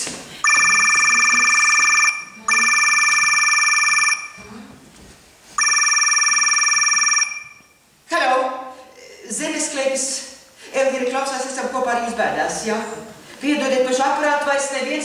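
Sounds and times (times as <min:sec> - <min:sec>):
telephone bell ringing: 0:00.4 - 0:04.4, 0:05.6 - 0:07.7.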